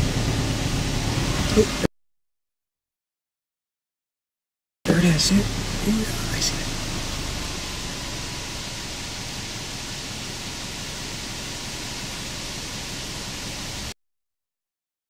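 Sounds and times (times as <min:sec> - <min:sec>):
low rumble: 0:04.9 - 0:13.9
outdoor background hiss: 0:04.9 - 0:13.9.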